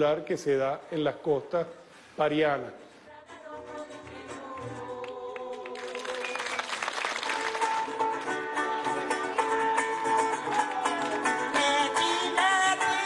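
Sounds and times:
audience applauding: 5.0 - 8.2.

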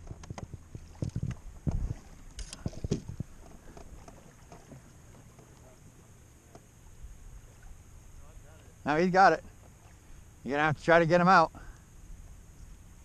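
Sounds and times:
wind: 0.0 - 13.0.

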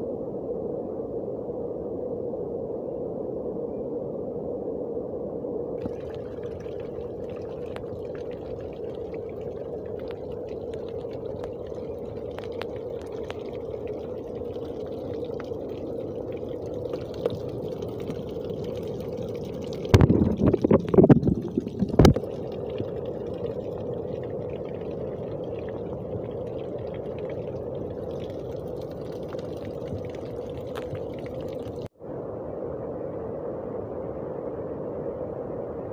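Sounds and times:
water pouring and splashing: 5.8 - 31.9.

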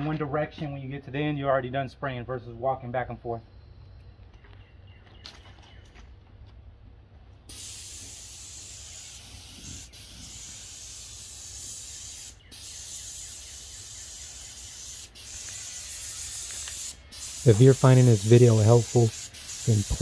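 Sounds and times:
paint sprayer hissing: 7.5 - 20.0.

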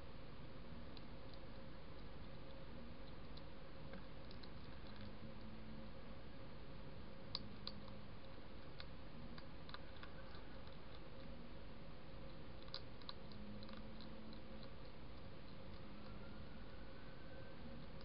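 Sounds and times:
background hiss: 0.0 - 18.0
hedgehog crunching dry food: 0.9 - 5.5, 7.2 - 11.5, 12.1 - 16.7.

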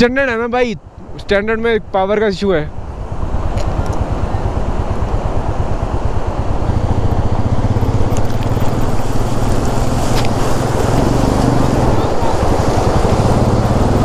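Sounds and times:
motorcycle engine running: 2.7 - 14.0
flowing water: 3.4 - 14.0.

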